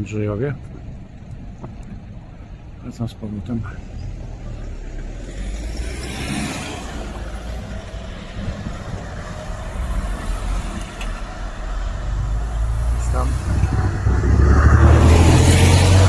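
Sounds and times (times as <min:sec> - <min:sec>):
road traffic passing: 0:00.0 - 0:16.0
vehicle swishing past: 0:03.9 - 0:16.0
wind rumble on microphone: 0:08.0 - 0:09.9, 0:12.0 - 0:16.0.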